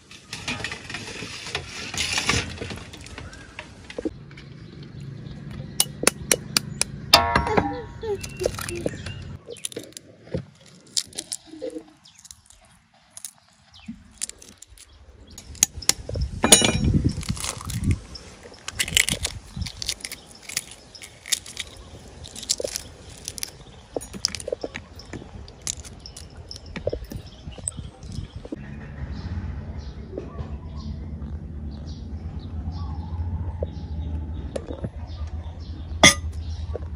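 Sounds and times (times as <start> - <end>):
eggshell crackling: 8.2 - 16.1, 17.0 - 28.2.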